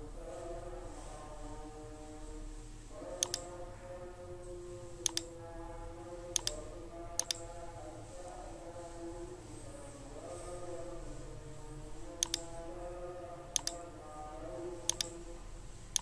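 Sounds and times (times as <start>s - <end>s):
mouse button double clicks: 13.6s - 13.8s.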